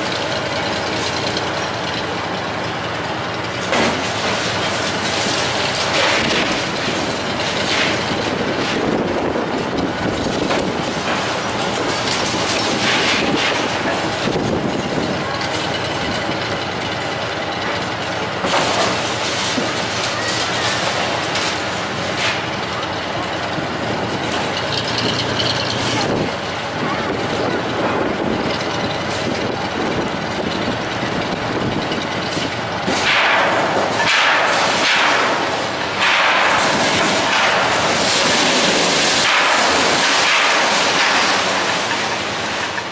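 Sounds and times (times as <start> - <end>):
crane rattling and clanking: 0.0 - 42.9
falling concrete debris roaring: 0.0 - 42.9
concrete crashing and falling: 3.7 - 9.0, 18.4 - 23.0, 32.9 - 42.9.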